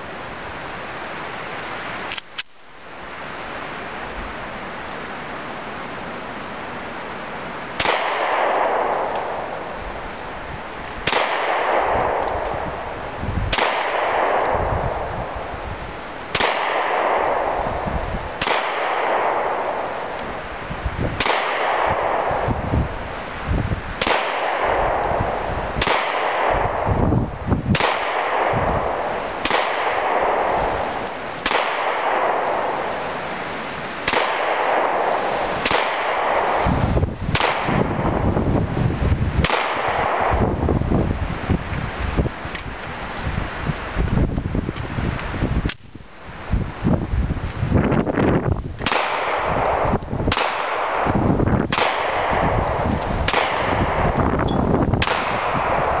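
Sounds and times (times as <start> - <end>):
pistol shots: 7.8 - 9.8, 10.8 - 15.5, 16.3 - 20.2, 21.2 - 22.8, 24.0 - 33.4, 34.0 - 38.4, 39.4 - 40.6, 48.8 - 56.0.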